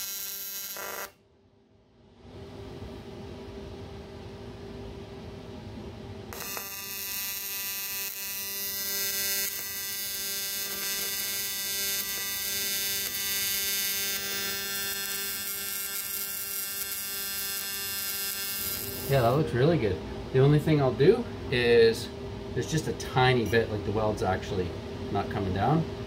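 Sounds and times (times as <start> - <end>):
welding arc buzzing and hissing: 0.0 - 1.2, 6.3 - 19.5
low steady hum: 0.3 - 26.0.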